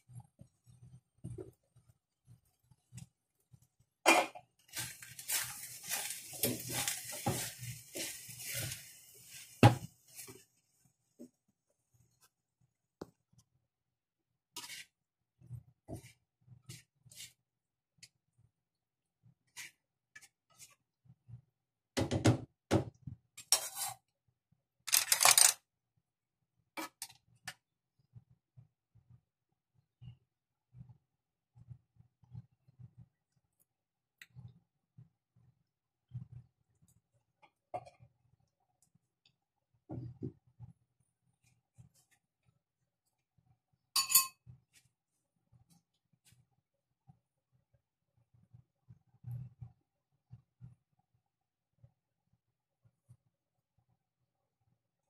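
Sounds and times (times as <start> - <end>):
spatula scraping a frying pan: 4.1 - 10.4, 14.5 - 15.0, 15.9 - 17.4, 19.4 - 20.8, 23.4 - 24.1.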